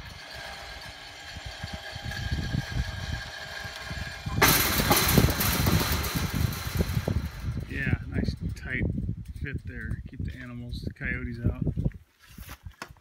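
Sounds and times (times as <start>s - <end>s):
gate motor whine: 0.0s - 7.7s.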